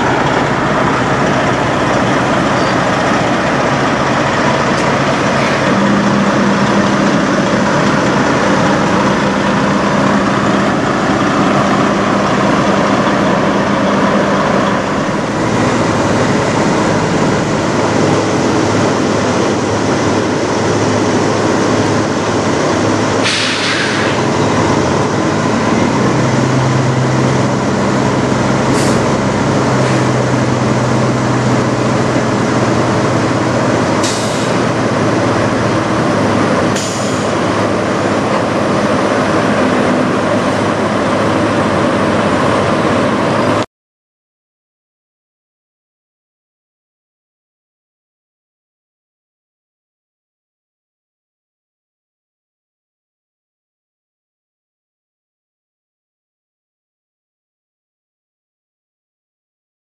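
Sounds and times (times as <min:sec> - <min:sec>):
truck diesel engine running: 0:00.0 - 0:43.6
air hiss burst: 0:23.2 - 0:24.2, 0:34.0 - 0:34.6, 0:36.8 - 0:37.3.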